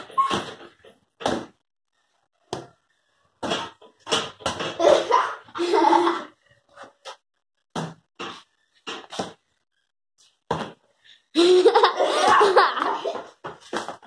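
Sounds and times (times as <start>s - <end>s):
girl laughing: 4.8s - 6.4s, 11.4s - 13.3s.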